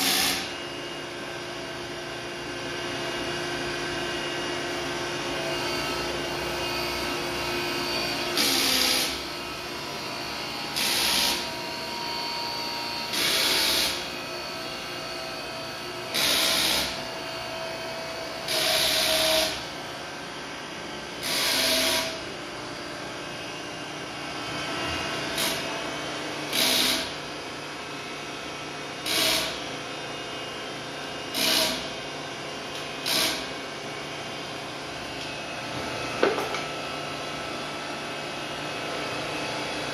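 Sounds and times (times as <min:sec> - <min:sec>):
grinder grinding metal: 0:00.0 - 0:00.5, 0:05.4 - 0:19.8, 0:26.4 - 0:27.2
grinding wheel humming: 0:04.7 - 0:20.3.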